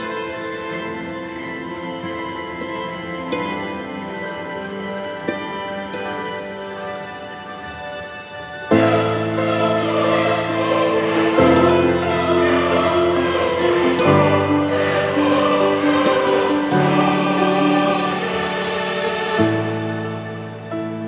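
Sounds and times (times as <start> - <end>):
choir singing slow held chords: 0.0 - 21.0.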